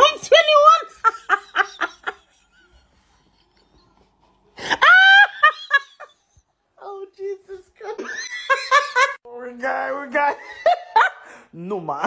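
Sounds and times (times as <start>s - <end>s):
man laughing hard: 1.0s - 6.4s.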